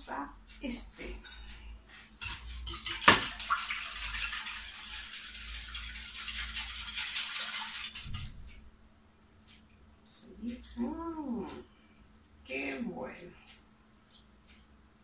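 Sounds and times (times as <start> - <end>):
whisk clicking against metal bowl: 2.2 - 8.3.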